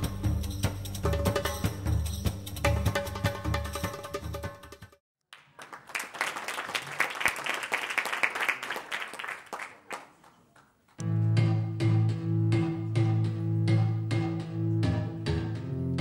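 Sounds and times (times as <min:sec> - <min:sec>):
audience applause: 0:05.3 - 0:10.8.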